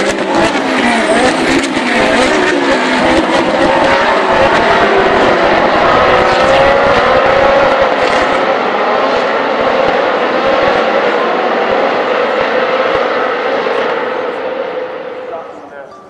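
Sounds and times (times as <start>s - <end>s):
race car engines passing: 0.0s - 16.0s.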